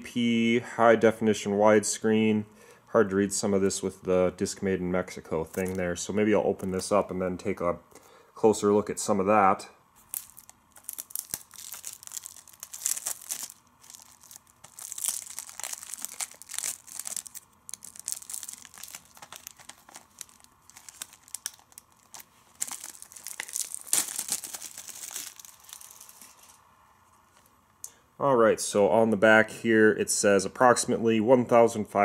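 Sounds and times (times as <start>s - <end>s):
plastic shrink-wrap crinkling: 5.5s - 5.9s, 10.0s - 26.6s.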